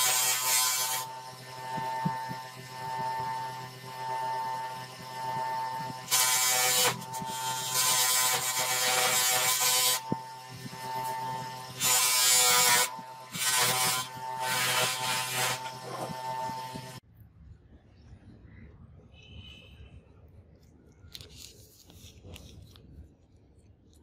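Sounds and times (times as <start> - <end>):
bench grinder running: 0.0 - 17.0.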